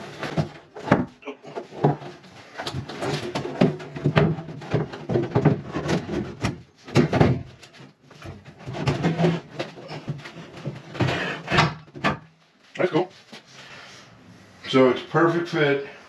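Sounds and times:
bathtub knocking and scraping: 0.0s - 12.4s.

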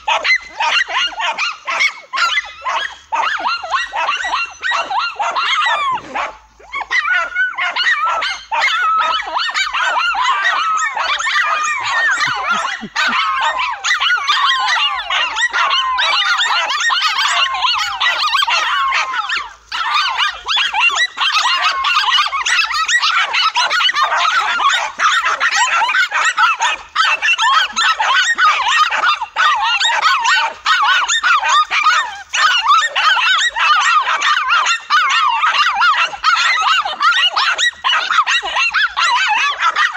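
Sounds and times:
dogs barking and yapping: 0.0s - 39.9s.

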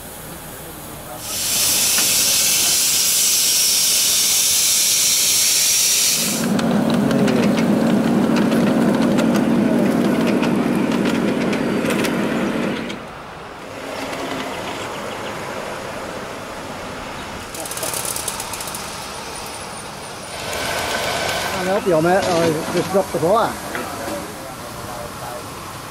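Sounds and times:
steam hissing loudly: 0.0s - 8.7s, 15.5s - 25.9s
model train running low drone: 0.0s - 25.9s
light clicks of train on track: 1.2s - 16.2s, 17.2s - 19.7s, 20.3s - 25.9s.

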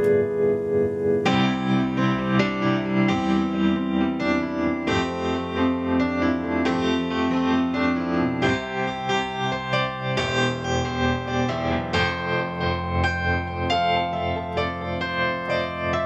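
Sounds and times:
electric piano chords: 0.0s - 16.0s.

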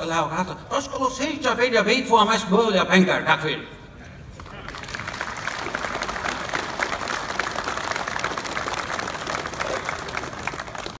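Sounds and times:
crowd applauding: 4.4s - 11.0s.

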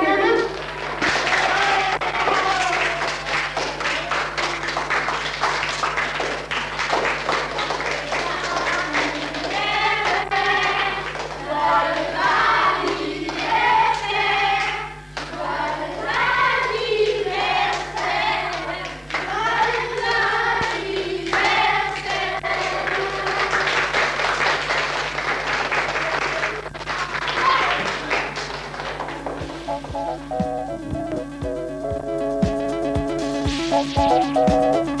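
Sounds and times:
children singing together: 0.0s - 0.6s, 7.6s - 24.0s
children clapping: 0.0s - 30.1s.

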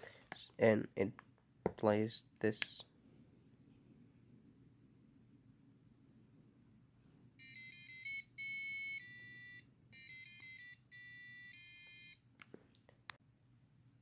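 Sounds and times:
buzzer beeping a tune: 7.4s - 12.2s.

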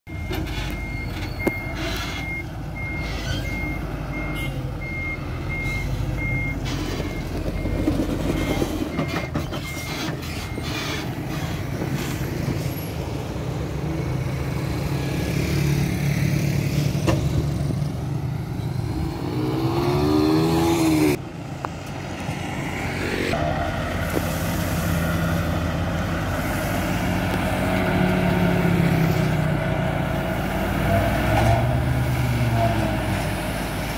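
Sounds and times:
reversing beeper: 0.1s - 11.0s
engine revving up: 18.6s - 21.2s.

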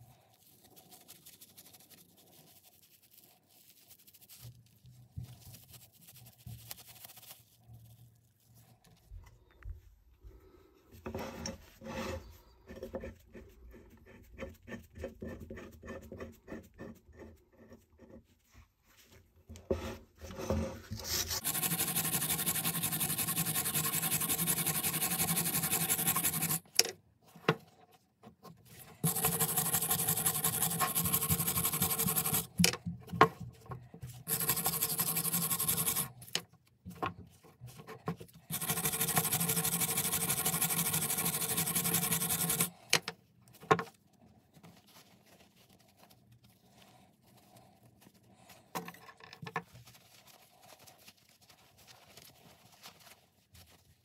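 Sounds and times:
scraping and handling: 10.8s - 21.5s, 42.6s - 54.0s
small power tool running: 21.4s - 26.6s, 29.0s - 32.5s, 34.3s - 36.1s, 38.5s - 42.7s.

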